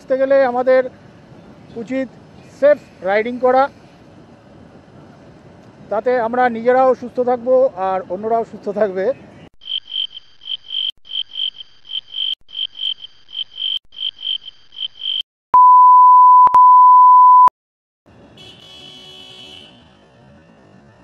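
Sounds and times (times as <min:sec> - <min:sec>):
loud steady beep tone: 0:15.6 - 0:17.5.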